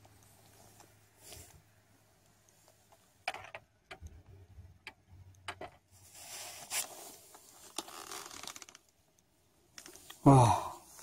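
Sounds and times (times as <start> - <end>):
short rustling: 5.9 - 8.8.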